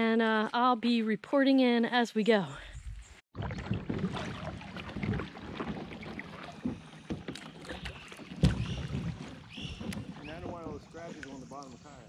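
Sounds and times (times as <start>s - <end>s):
water lapping around kayak: 3.3s - 12.0s
small splashes and clicks: 3.4s - 11.8s.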